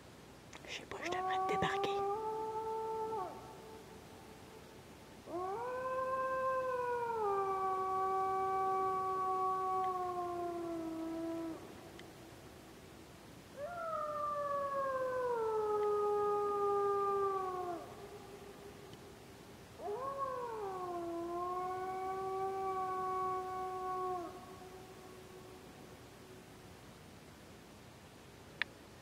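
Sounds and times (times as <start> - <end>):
wolf howling: 0.9 - 3.6, 5.2 - 12.1, 13.6 - 18.8, 19.8 - 25.7.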